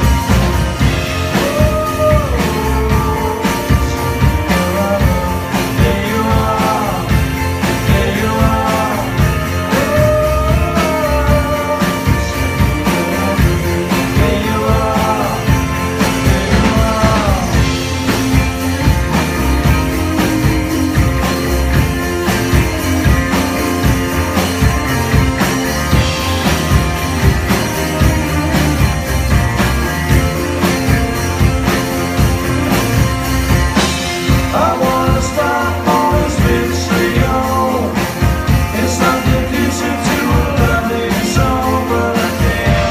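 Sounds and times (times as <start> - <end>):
bass guitar: 0.0 - 42.9
drum kit: 0.0 - 42.9
electric guitars: 0.0 - 42.9
man singing: 0.8 - 18.2, 19.5 - 21.6, 34.2 - 42.9.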